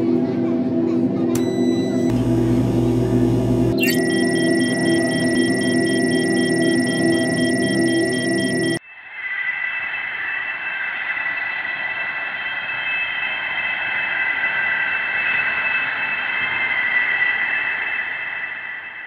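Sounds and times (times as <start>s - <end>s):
electronic drone of high tones: 1.4s - 8.8s.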